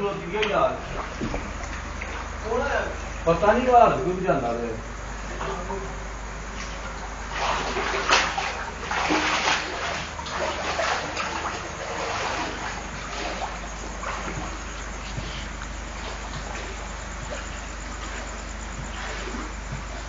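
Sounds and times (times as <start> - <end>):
feet wading through water: 0.0 - 3.2, 6.4 - 20.0.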